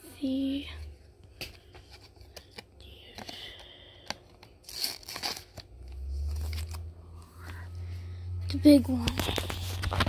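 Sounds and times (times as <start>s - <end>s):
plastic pages crinkling: 4.3s - 6.9s, 8.9s - 10.0s
camera handling rumble: 9.0s - 10.0s.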